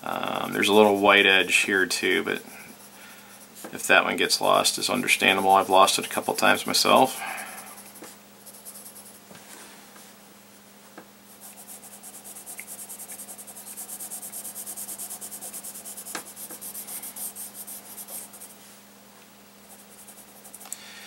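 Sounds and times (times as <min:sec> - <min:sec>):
faint steady hum: 0:00.0 - 0:21.0
pencil scratching on paper: 0:00.4 - 0:03.0, 0:03.6 - 0:09.2, 0:11.3 - 0:18.5, 0:19.7 - 0:20.6.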